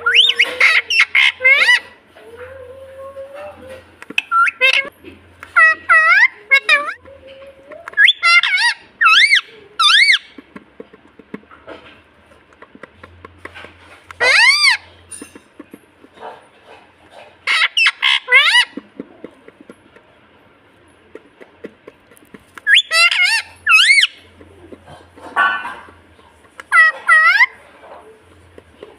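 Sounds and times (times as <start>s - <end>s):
parakeets screeching: 0.0s - 2.0s, 3.4s - 4.9s, 5.5s - 7.0s, 7.9s - 10.4s, 14.1s - 15.6s, 16.2s - 19.0s, 22.6s - 28.0s
beak clicking on chew toy: 21.0s - 24.8s.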